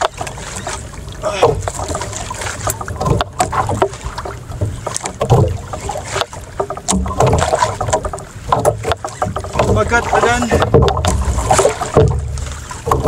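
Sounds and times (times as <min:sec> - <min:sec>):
boat knocks and clicks: 0:00.0 - 0:13.0
water lapping against boat hull: 0:00.0 - 0:13.0.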